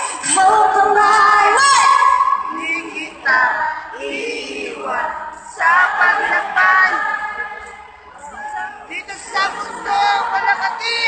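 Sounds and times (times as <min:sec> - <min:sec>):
woman singing: 0:00.0 - 0:07.6.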